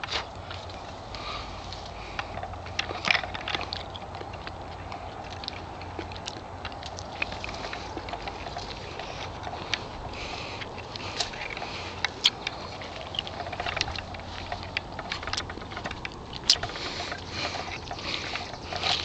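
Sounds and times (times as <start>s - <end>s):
leaves rustling and stems snapping: 0.0s - 19.0s.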